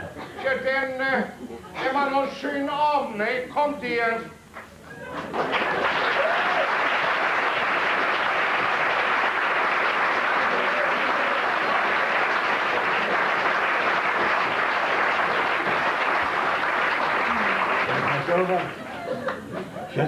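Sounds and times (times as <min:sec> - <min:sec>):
audience applauding: 0:04.6 - 0:19.6.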